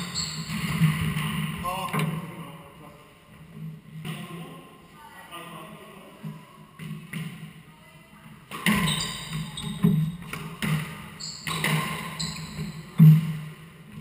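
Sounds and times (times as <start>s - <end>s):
shoes squeaking on wooden floor: 0.0s - 1.3s, 8.6s - 13.4s.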